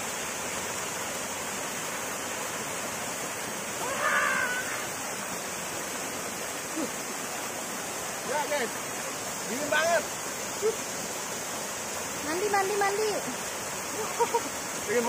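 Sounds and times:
water rushing in stream: 0:00.0 - 0:15.0.

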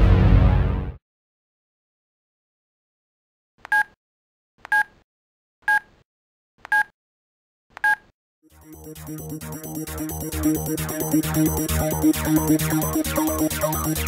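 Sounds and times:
short electronic beeps: 0:06.7 - 0:06.9
electronic music with pulsing beat: 0:08.5 - 0:14.0.

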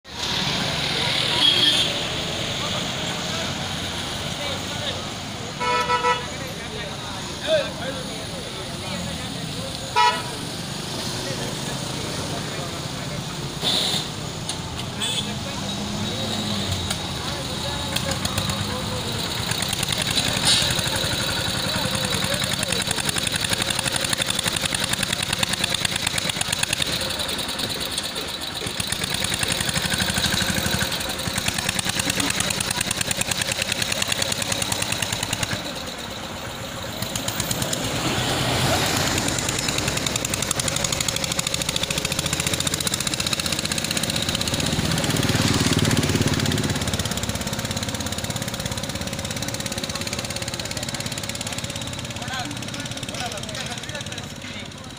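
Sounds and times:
tractor diesel engine knocking: 0:16.8 - 0:54.9.

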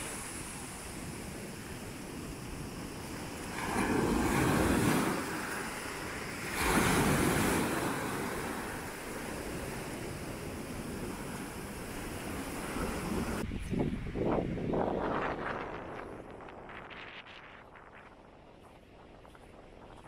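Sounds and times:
waves washing up pebble beach: 0:00.0 - 0:13.4.

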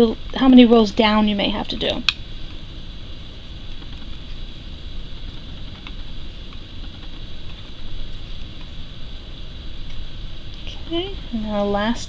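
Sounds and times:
low rumble and hiss: 0:00.0 - 0:12.0.

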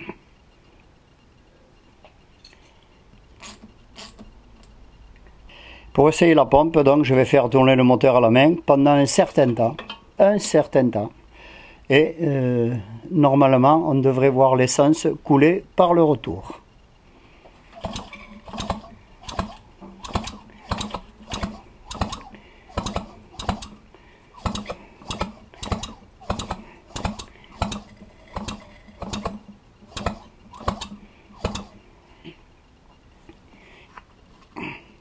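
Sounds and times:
mechanical clicking: 0:17.6 - 0:31.9
moped engine turned over by hand: 0:17.7 - 0:31.8.

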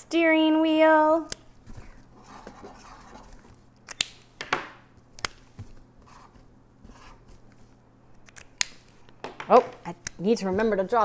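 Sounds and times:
marker scratching on cardboard: 0:02.2 - 0:03.4.

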